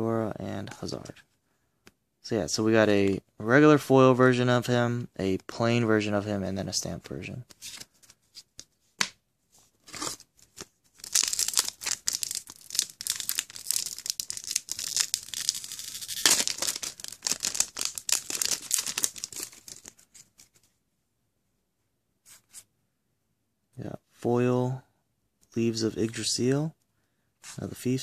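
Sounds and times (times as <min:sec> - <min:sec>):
foil wrapper crinkling and tearing: 0:11.0 - 0:20.5.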